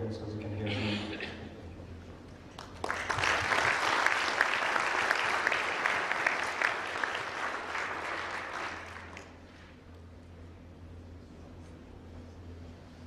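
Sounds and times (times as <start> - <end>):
audience applauding: 2.5 - 9.4.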